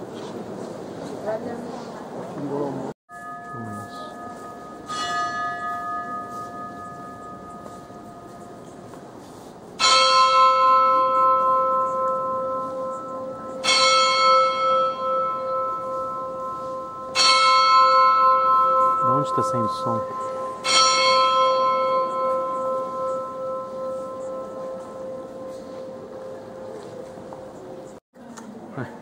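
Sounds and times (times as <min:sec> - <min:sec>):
higher-pitched bell stroke: 0:03.1 - 0:27.2
lower bell strokes: 0:03.1 - 0:27.9
clock bell striking: 0:03.1 - 0:28.0.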